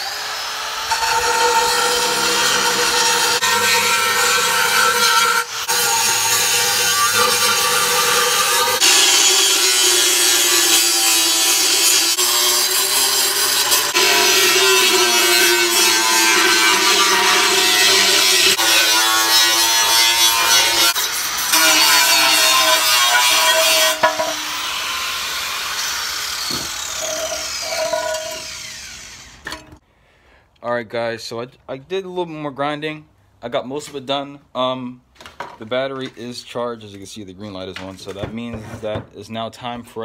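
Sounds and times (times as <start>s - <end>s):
angle grinder grinding metal: 0.0s - 29.8s.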